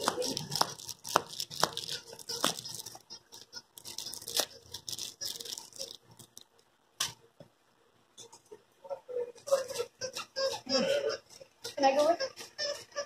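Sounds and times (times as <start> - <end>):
dog chewing on a toy: 0.0 - 6.4.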